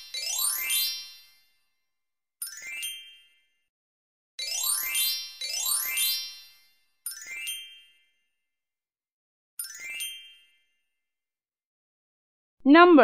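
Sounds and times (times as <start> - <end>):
bell-like dings: 4.4 - 8.4, 9.6 - 11.0.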